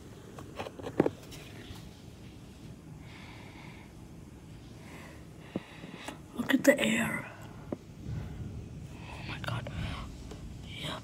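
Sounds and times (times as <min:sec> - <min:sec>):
low steady background hum: 0:00.0 - 0:11.0
soft breaths: 0:01.3 - 0:11.0.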